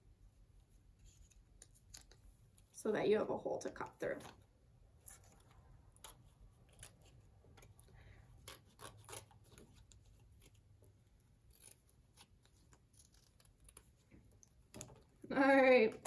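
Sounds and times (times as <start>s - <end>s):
scissors cutting cardboard: 5.0s - 15.0s.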